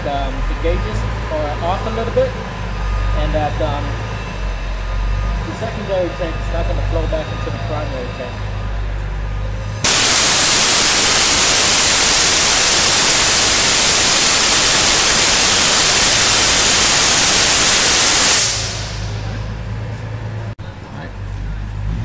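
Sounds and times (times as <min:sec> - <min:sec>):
compressed air hissing from valve: 0:09.8 - 0:19.4.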